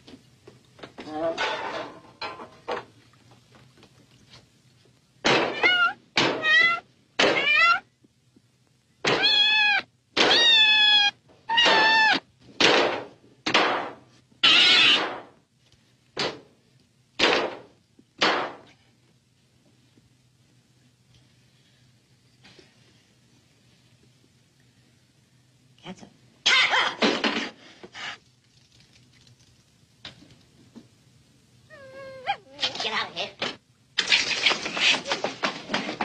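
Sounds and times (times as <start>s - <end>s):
cat meowing: 5.5s - 7.9s, 9.1s - 12.3s, 14.4s - 15.2s.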